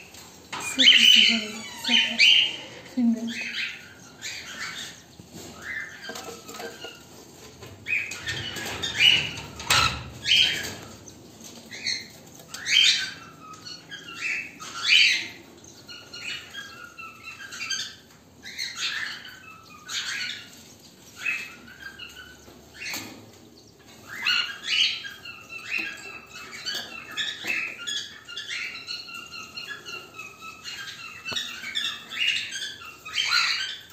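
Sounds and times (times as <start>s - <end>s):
cockatiels chirping and squawking: 0.1s - 33.9s.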